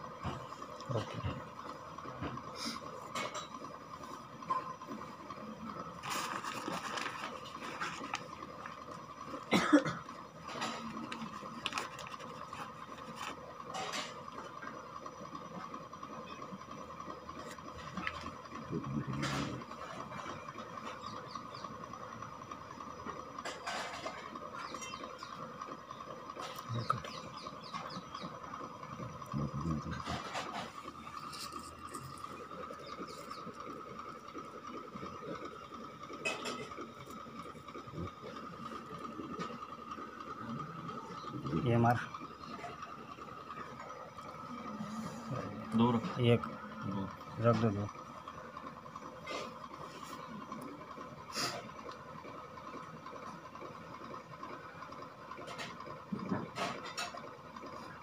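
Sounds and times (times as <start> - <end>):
paper packet crinkling: 6.0 - 8.7, 11.1 - 13.4
high-pitched hum: 16.2 - 52.0.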